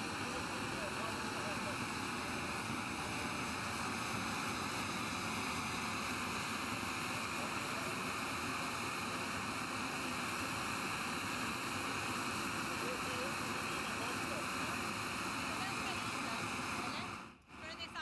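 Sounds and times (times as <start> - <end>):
gas burner hissing: 0.0 - 18.0.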